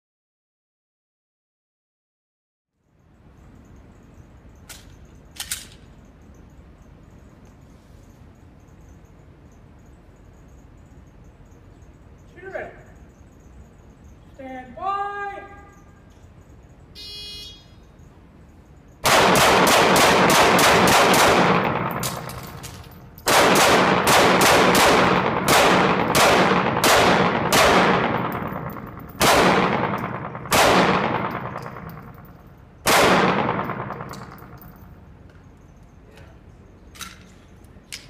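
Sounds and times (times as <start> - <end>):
shot timer beep: 17.0 - 17.7
pistol shots echoing in hall: 19.0 - 34.9.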